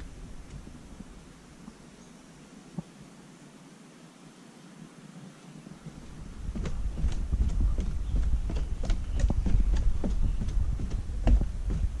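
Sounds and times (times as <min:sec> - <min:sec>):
low rumble: 0:05.9 - 0:12.0
footsteps on wooden stairs: 0:06.0 - 0:12.0.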